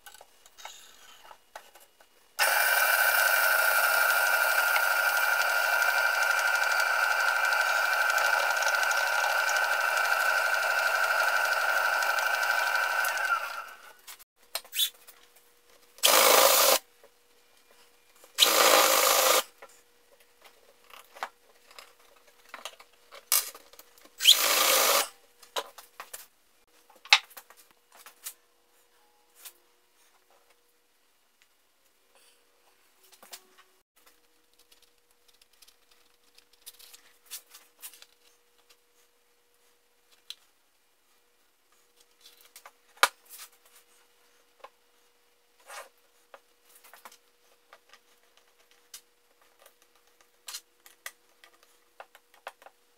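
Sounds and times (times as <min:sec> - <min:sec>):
drill boring into wood: 0:02.4 - 0:13.9, 0:16.0 - 0:16.8, 0:18.4 - 0:19.4, 0:24.2 - 0:25.1.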